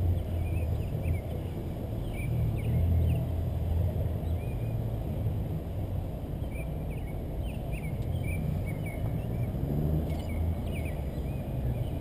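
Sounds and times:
car rumbling: 0.0s - 12.0s
birds chirping: 6.4s - 12.0s.

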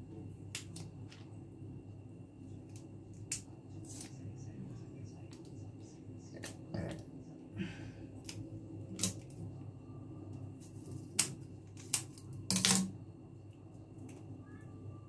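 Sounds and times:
scissors cracking hard shells: 11.2s - 12.9s.

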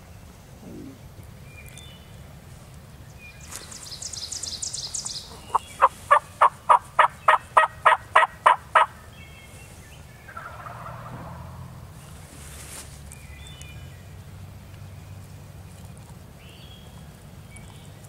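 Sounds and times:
turkey yelping: 5.3s - 9.0s, 10.3s - 11.1s.

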